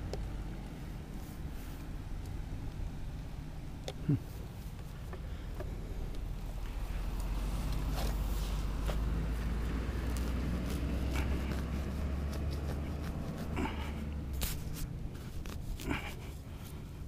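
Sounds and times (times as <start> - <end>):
gear knocking and scraping: 4.7 - 16.8.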